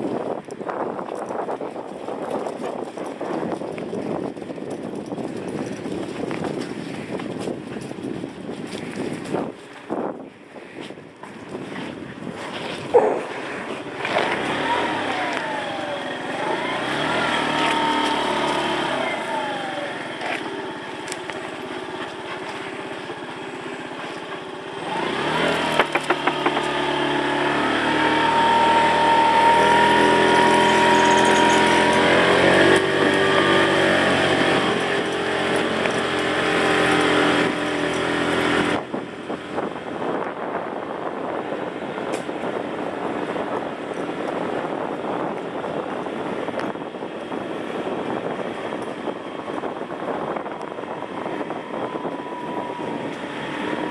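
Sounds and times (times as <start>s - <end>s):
small motorbike engine revving: 12.6s - 40.6s, 41.2s - 53.9s.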